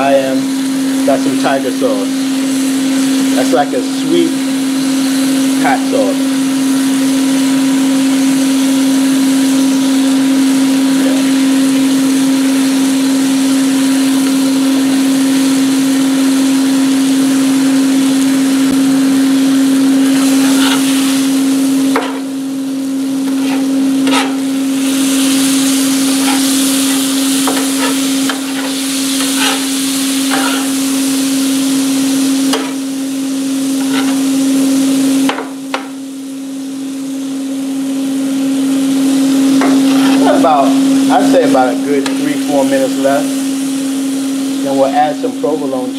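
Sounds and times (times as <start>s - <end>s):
fan humming: 0.0s - 45.9s
meat sizzling on a griddle: 0.0s - 45.9s
metal spatula scraping and chopping: 20.1s - 21.3s, 21.9s - 22.4s, 23.2s - 25.3s, 25.9s - 30.9s, 32.5s - 32.9s, 33.8s - 34.4s, 39.6s - 40.4s.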